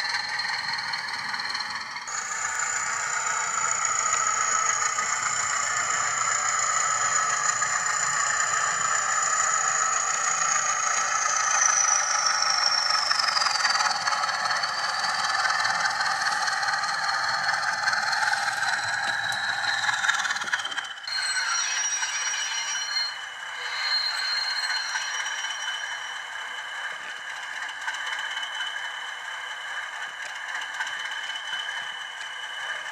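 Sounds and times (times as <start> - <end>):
thin engine drone from small speaker: 0.0 - 22.1
high whine falling in pitch: 0.0 - 26.2.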